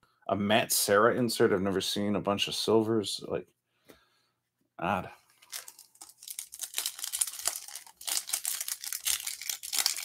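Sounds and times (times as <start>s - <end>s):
foil wrapper tearing and crinkling: 5.4s - 10.0s.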